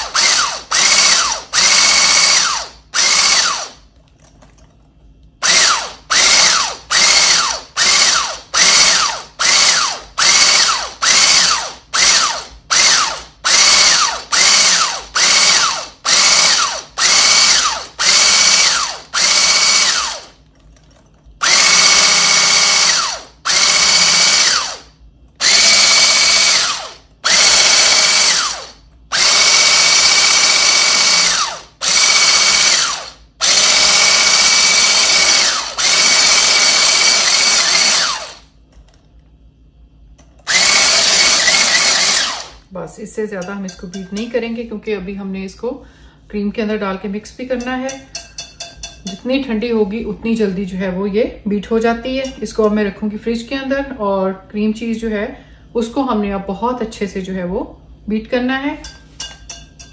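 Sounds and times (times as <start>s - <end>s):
electric mixer whining: 0.0s - 3.8s, 5.4s - 20.4s, 21.4s - 38.4s, 40.4s - 42.7s.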